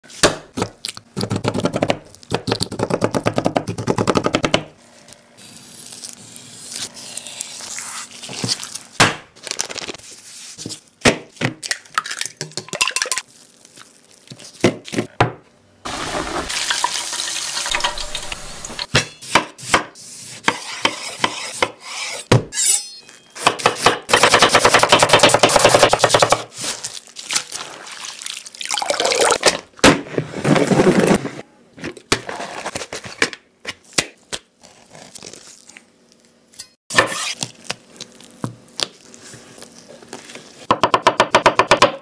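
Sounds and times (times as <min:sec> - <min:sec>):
sizzling: 0:15.8 - 0:18.9.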